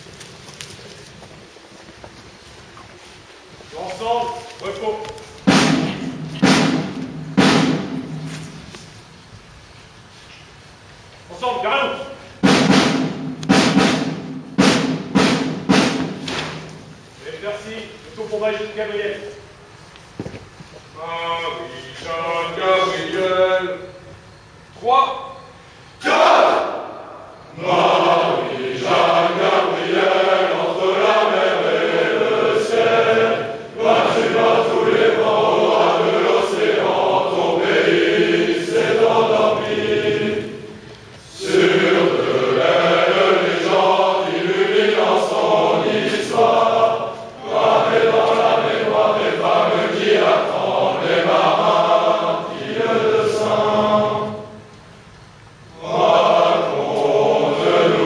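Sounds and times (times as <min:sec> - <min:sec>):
men's chorus singing: 0:21.2 - 0:24.0, 0:26.0 - 0:54.7, 0:55.7 - 0:58.0.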